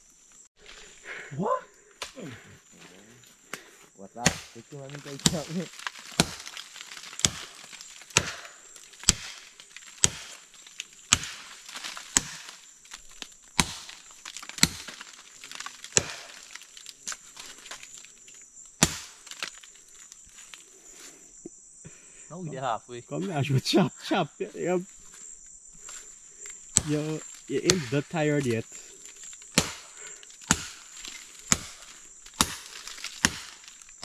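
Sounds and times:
high insect drone: 0:00.0 - 0:34.0
machete chopping into palm trunk: 0:04.2 - 0:17.8, 0:18.8 - 0:19.7, 0:26.7 - 0:28.6, 0:29.5 - 0:34.0.

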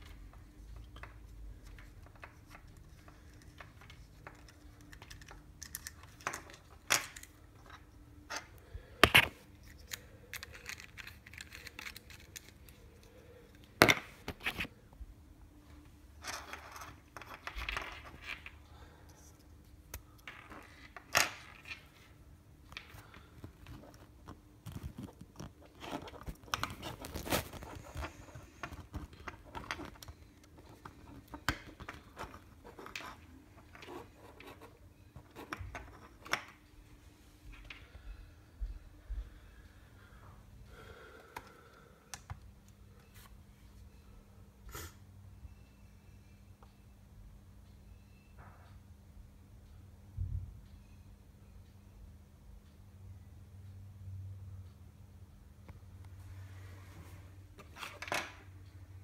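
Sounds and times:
handling small electronic parts: 0:00.0 - 0:14.7, 0:16.2 - 0:36.6
faint steady hum: 0:00.0 - 0:59.0.

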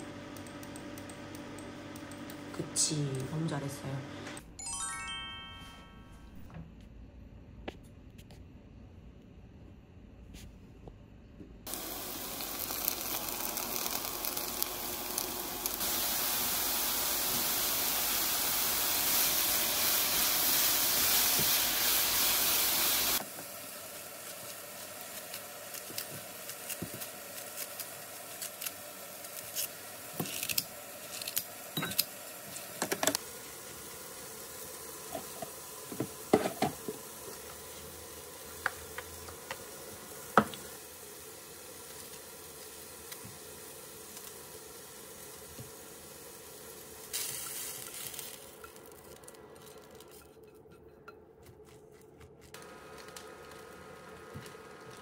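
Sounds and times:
food sizzling in oil: 0:11.7 - 0:49.2.

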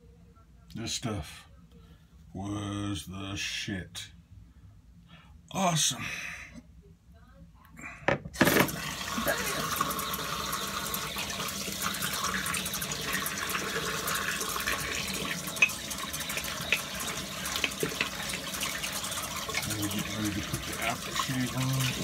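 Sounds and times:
tap running into sink: 0:08.4 - 0:10.2, 0:11.8 - 0:22.0
water splashes: 0:08.6 - 0:22.0.

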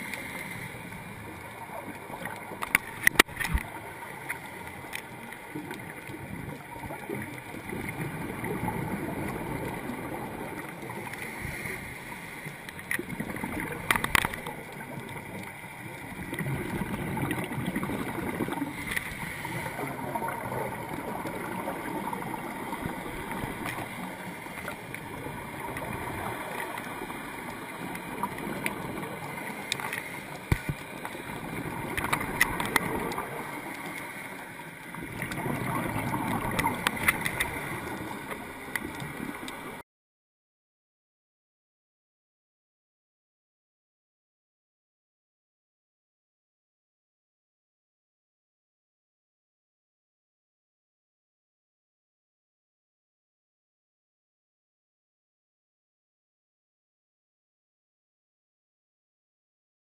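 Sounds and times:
scuba regulator bubbles gurgling: 0:00.0 - 0:39.8.

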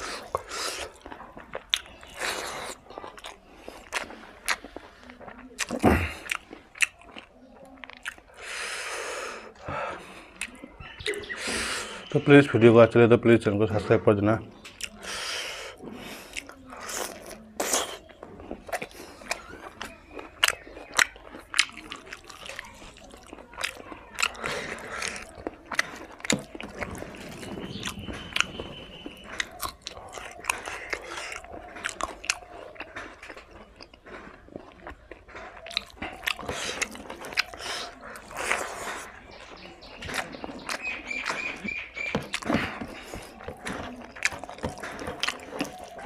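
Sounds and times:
person chewing food: 0:00.0 - 0:12.2, 0:14.5 - 0:46.0
mouth clicks: 0:00.0 - 0:12.4, 0:14.6 - 0:46.0.

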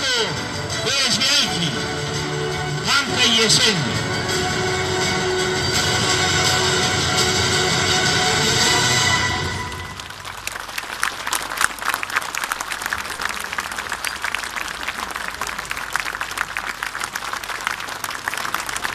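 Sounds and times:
music: 0:00.0 - 0:10.1
crowd applauding: 0:00.0 - 0:18.9.

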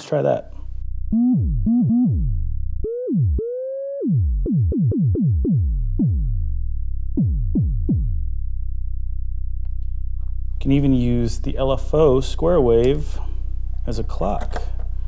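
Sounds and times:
held higher synthesizer note: 0:00.9 - 0:08.7
synthesizer kick drum thumps: 0:01.0 - 0:09.1.

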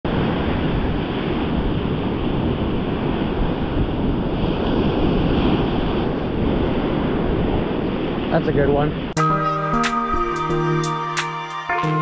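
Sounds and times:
wind buffeting microphone: 0:00.1 - 0:09.2
ocean surf breaking: 0:00.1 - 0:12.0.

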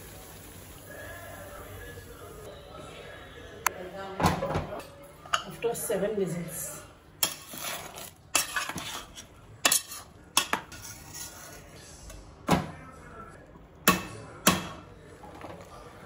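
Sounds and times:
metal utensils clinking on pot: 0:07.2 - 0:11.7.

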